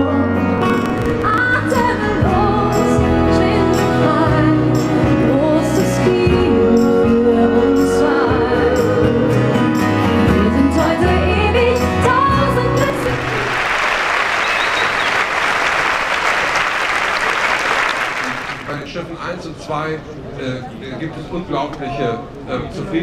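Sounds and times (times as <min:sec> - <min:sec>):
women singing a pop song: 0:00.0 - 0:13.2
instrumental accompaniment: 0:00.0 - 0:13.4
audience applause: 0:12.9 - 0:18.9.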